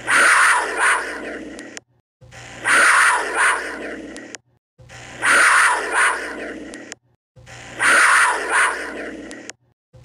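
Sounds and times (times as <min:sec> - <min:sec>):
cougar calling: 0:00.0 - 0:01.4, 0:02.6 - 0:04.0, 0:05.2 - 0:06.7, 0:07.8 - 0:09.3.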